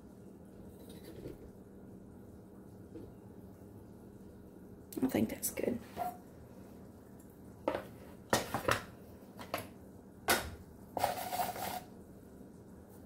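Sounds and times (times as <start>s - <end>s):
utensil scrape or rattle: 11.0s - 11.9s.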